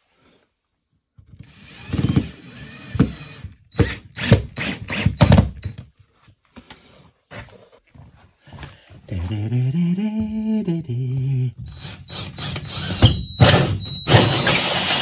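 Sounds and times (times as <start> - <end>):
cordless drill motor running: 1.4 - 5.1, 11.7 - 13.1
short drill bursts: 11.7 - 15.0.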